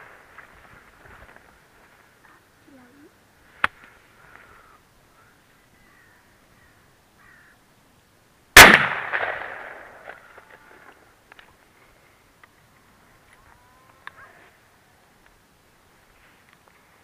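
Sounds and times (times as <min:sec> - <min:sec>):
gunshot echoing: 0:08.6 - 0:10.2.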